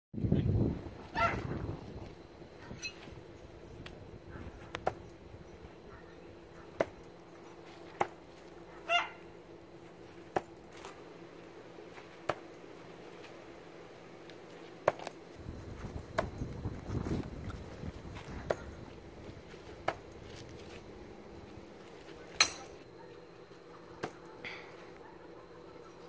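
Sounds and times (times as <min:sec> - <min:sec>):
animal call: 0:01.1 - 0:01.5, 0:08.7 - 0:09.3
rustling: 0:06.6 - 0:25.0.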